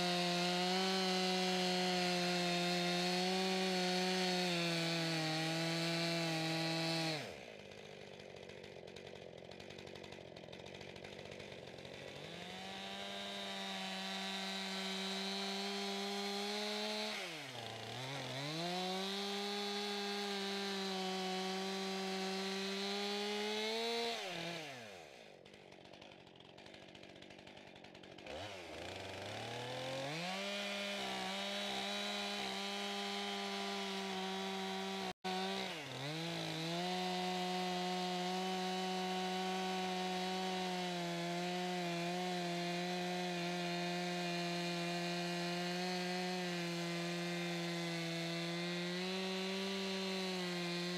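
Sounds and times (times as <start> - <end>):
chainsaw cutting log: 0.0 - 50.9.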